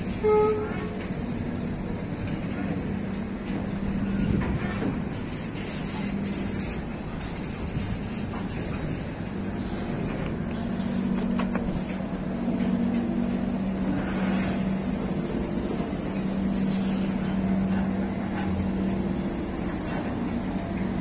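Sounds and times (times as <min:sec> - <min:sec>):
truck engine low hum: 0:09.2 - 0:21.0.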